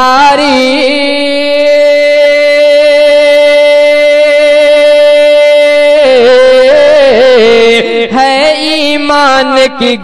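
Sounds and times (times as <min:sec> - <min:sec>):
man singing devotional song: 0:00.0 - 0:10.0.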